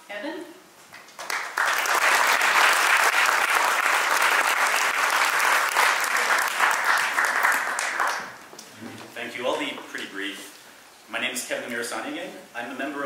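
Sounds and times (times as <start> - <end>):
audience applauding: 1.2 - 8.5.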